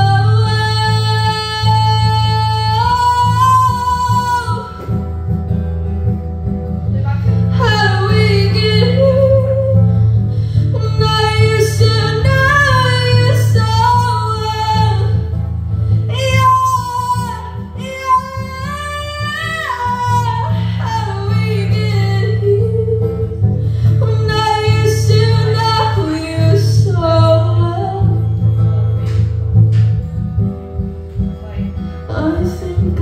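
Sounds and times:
woman singing into microphone: 0.0s - 5.2s, 7.3s - 28.6s, 31.2s - 33.0s
low musical accompaniment: 26.0s - 33.0s.

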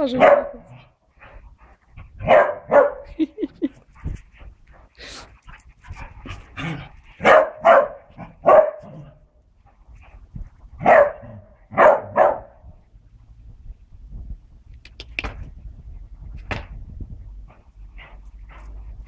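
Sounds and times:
dogs barking: 0.1s - 0.7s, 2.2s - 3.1s, 7.2s - 9.2s, 10.8s - 12.6s.

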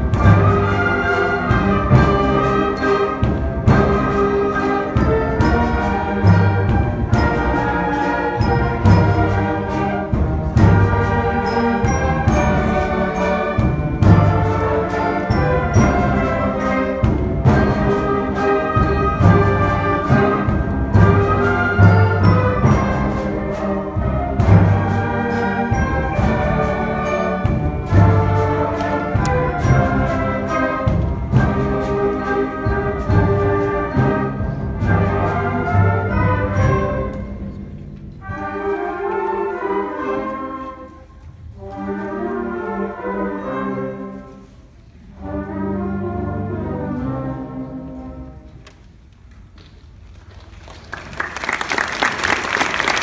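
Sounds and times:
drum and brass accents: 0.0s - 40.2s
concert band playing: 0.0s - 44.4s.

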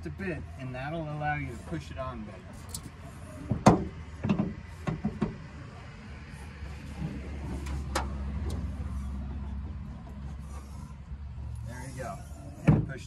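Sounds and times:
sharp clicks and knocks: 3.5s - 5.4s.

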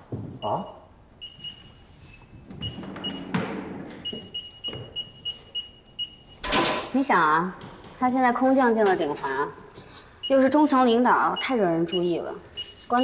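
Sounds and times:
keypad beeping: 2.6s - 6.4s.

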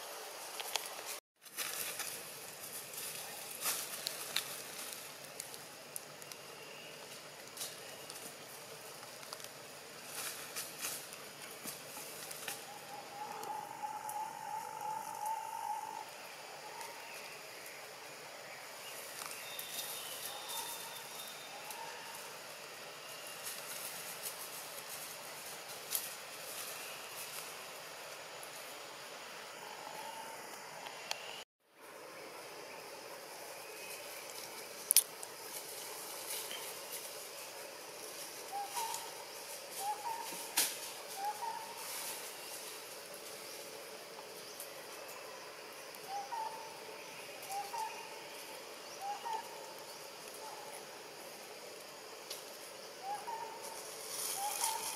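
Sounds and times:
rustling of dry leaves: 0.0s - 30.5s, 31.6s - 54.9s
outdoor hiss: 15.5s - 54.9s.

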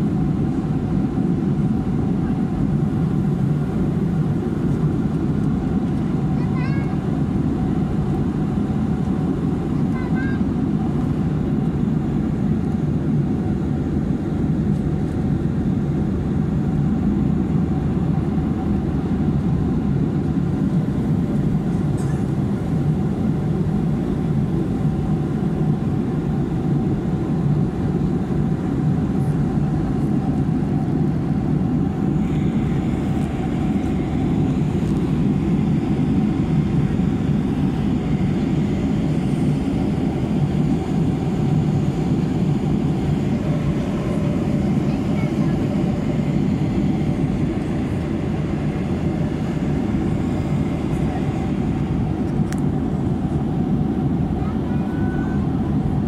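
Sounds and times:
faint steady hum: 0.0s - 56.0s
airliner cabin rush: 28.7s - 56.0s.

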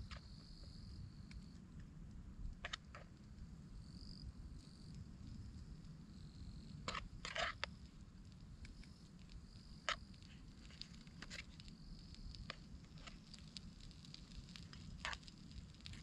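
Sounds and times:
insects trilling: 3.7s - 16.0s.

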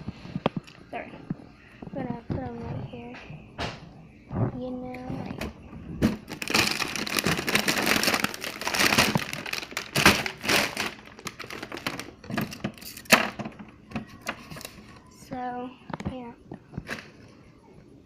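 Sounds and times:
crinkling and rustling: 4.3s - 17.4s.

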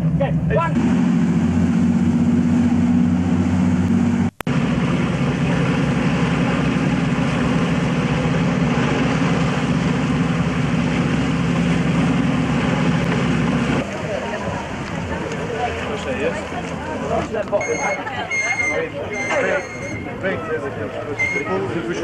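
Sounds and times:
boat engine drone: 0.0s - 22.0s
broad rush of noise: 0.0s - 22.0s.

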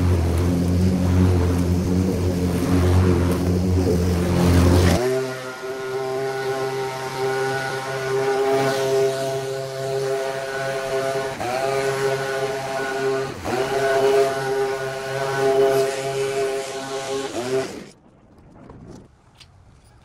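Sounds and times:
lawn mower engine running: 0.0s - 18.0s
leaf blower engine running: 0.0s - 18.0s.

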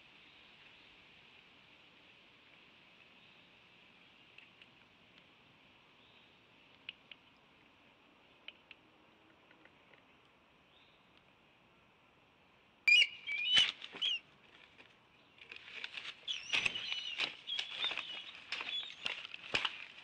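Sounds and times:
high chirping calls: 12.9s - 14.2s, 16.2s - 19.2s
bird wings flapping and rustling: 13.5s - 14.8s, 15.5s - 20.0s.

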